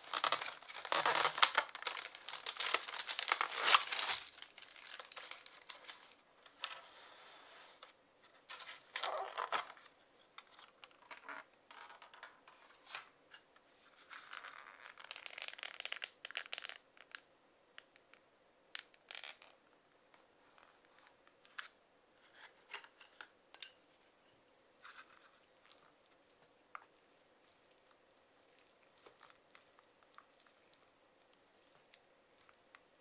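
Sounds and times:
plastic film crinkling: 0.0 - 6.7.

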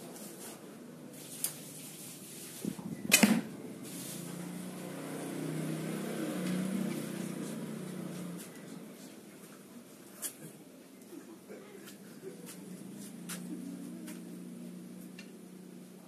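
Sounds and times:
low engine hum: 2.6 - 9.9, 11.5 - 16.0
bow shot crack: 3.0 - 3.6.

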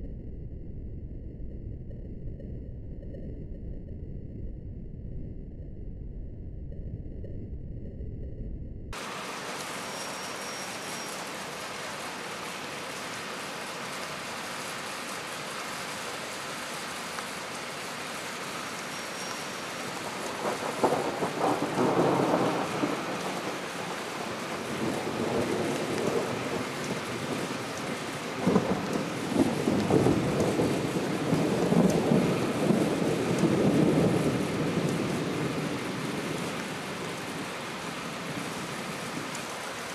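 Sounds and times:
rain hissing: 9.0 - 39.9
thunder rumbling: 9.0 - 39.9.

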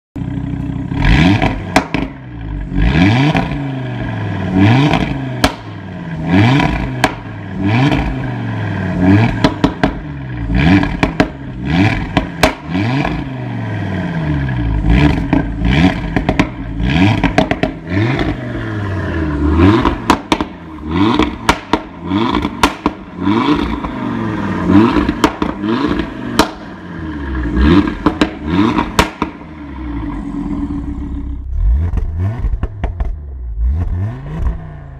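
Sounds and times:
car exhaust revving: 0.2 - 34.9
exhaust crackles and pops: 0.6 - 2.6, 4.8 - 5.8, 6.6 - 8.2, 9.1 - 13.2, 14.7 - 18.6, 19.5 - 24.0, 24.6 - 26.8, 27.4 - 34.7.

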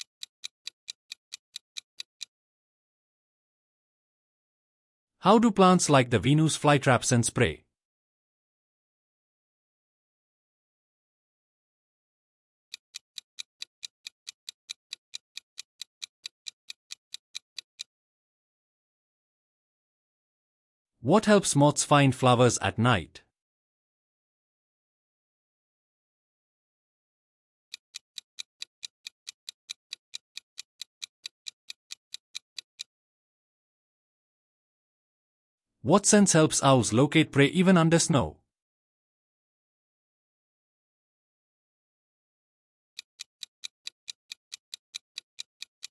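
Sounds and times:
rapid clock ticking: 0.0 - 2.3, 12.8 - 17.9, 27.7 - 32.9, 43.0 - 45.9.

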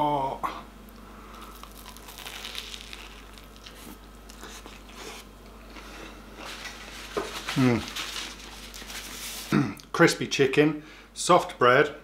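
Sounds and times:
crunchy chewing: 1.3 - 9.5
crunchy sandwich bite: 1.3 - 9.5.

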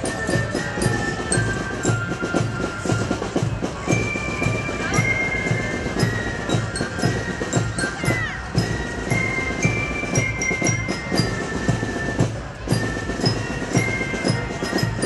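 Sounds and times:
steady drum beat: 0.0 - 15.0.

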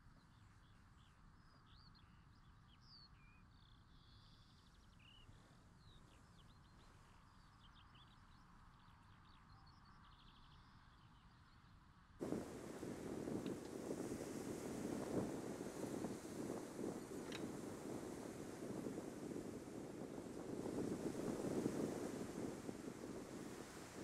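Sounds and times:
quiet hiss: 12.2 - 24.0.

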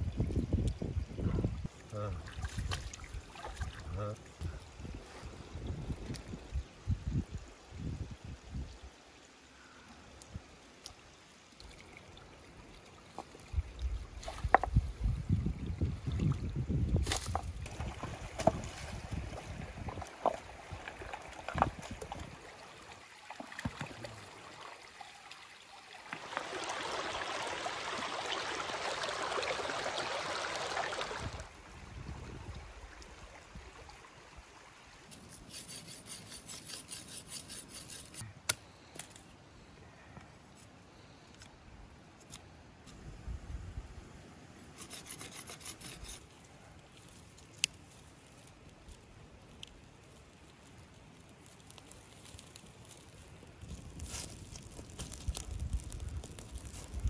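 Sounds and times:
water sloshing in a stream: 1.6 - 6.7, 9.0 - 38.2.

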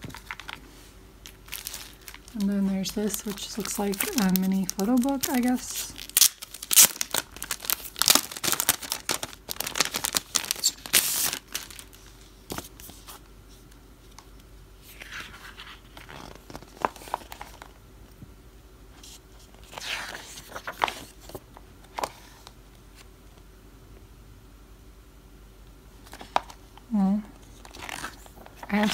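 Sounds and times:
packaging crinkling and tearing: 0.0 - 0.6, 1.2 - 12.7, 27.6 - 28.9
book pages turning: 0.0 - 17.8, 19.0 - 23.1, 27.5 - 28.9.

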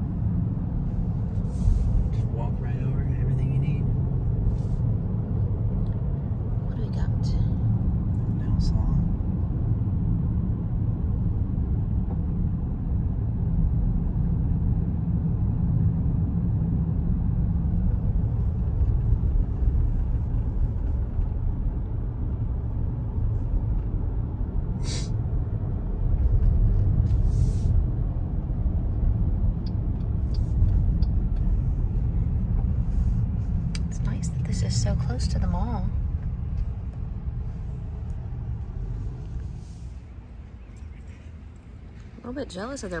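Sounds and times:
car cabin road rumble: 0.0 - 43.0.

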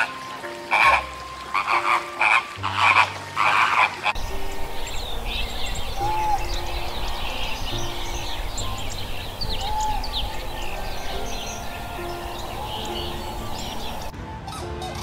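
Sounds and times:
flamingos honking: 0.0 - 14.1
steady outdoor hiss: 0.0 - 14.1
faint high chirps: 4.2 - 14.1.

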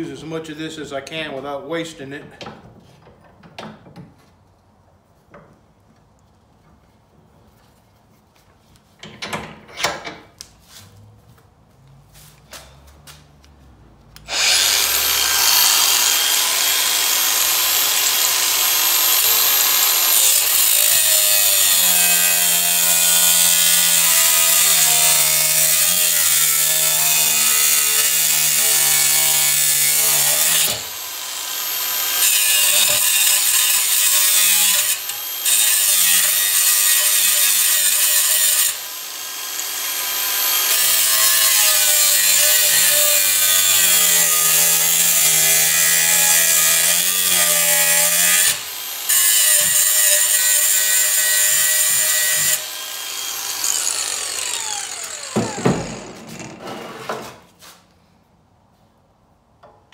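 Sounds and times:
angle grinder cutting steel: 14.2 - 56.6.

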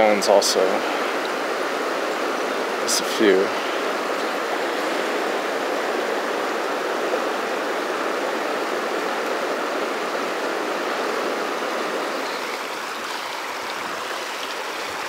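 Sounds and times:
river water rushing over rocks: 0.0 - 15.0.

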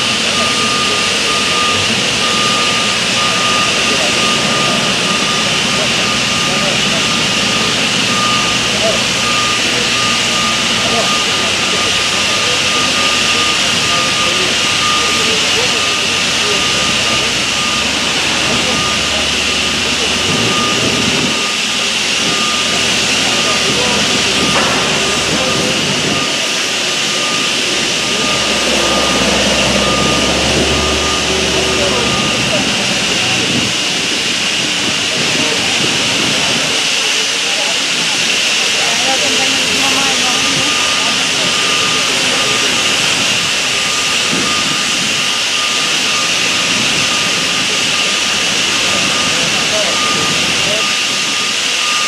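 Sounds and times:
faint high beep: 0.0 - 33.7, 38.8 - 52.0
thin high-pitched tone: 0.0 - 34.3
crane engine and hydraulics roaring: 0.0 - 52.0.

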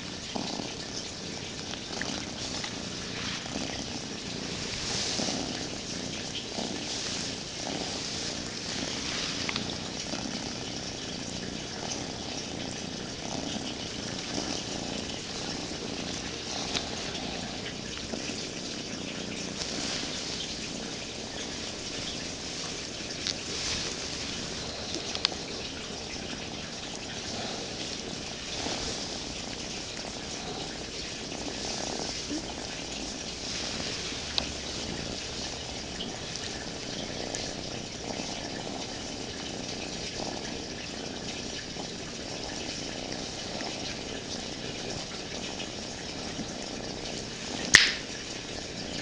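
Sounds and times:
cat purring: 0.0 - 49.0.

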